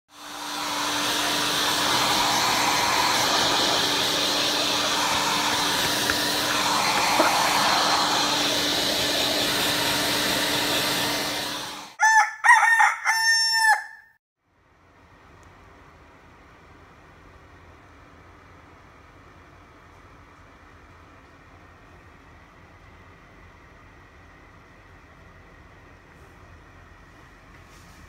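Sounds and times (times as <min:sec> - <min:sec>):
rooster crowing: 0:12.0 - 0:14.2.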